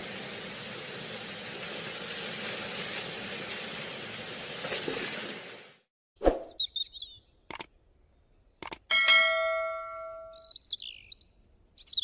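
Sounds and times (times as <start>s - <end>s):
birds chirping: 6.2s - 12.0s
button clicks: 8.6s - 8.8s
notification bell ding: 8.9s - 10.4s.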